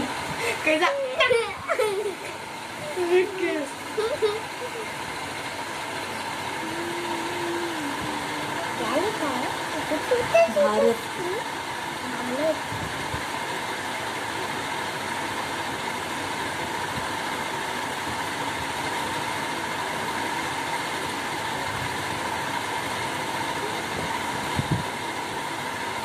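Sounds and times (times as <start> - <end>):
faint high hum: 0.0 - 12.9
steady machine hiss: 0.0 - 26.0.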